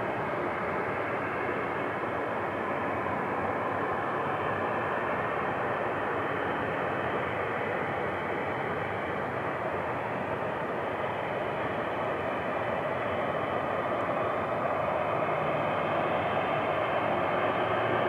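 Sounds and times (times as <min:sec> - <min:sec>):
jet engines rushing: 0:00.0 - 0:18.0.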